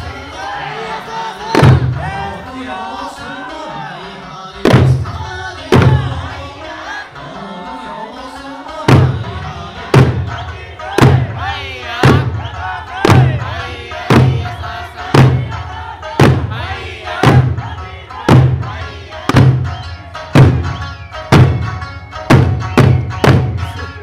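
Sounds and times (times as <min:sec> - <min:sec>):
people singing: 0:00.0 - 0:20.4
hand drums thumping in unison: 0:01.5 - 0:02.2, 0:04.6 - 0:06.4, 0:08.9 - 0:23.8.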